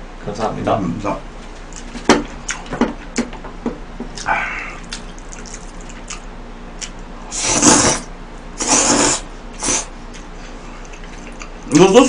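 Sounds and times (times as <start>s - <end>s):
slurping spaghetti: 7.3s - 9.9s.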